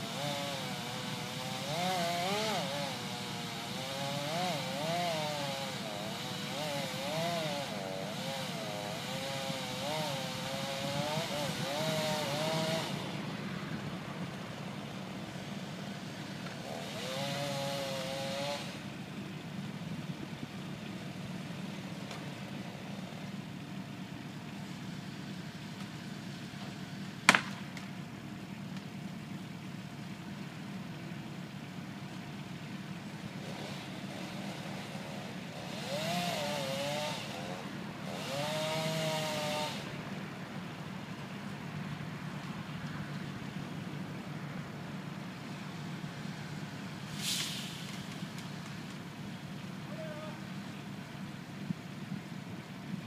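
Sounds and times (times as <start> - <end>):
chainsaw revving: 0.0 - 13.3, 14.9 - 19.0, 33.2 - 40.0
low engine hum: 0.0 - 53.0
sharp crack: 27.2 - 28.0.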